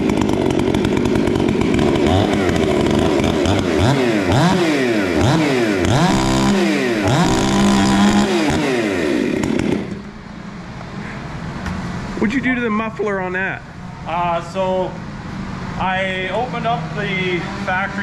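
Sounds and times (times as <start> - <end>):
chainsaw revving: 0.0 - 10.1.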